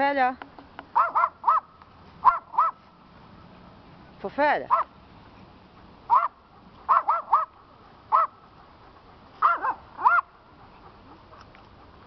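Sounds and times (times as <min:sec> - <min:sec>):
small dog yapping: 0:01.0 - 0:02.8, 0:06.1 - 0:07.5, 0:08.1 - 0:08.3, 0:09.4 - 0:10.3.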